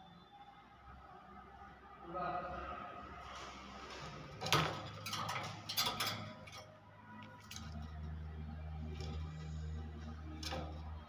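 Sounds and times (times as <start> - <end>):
bird moving in wire cage: 4.4 - 8.2, 8.8 - 10.9.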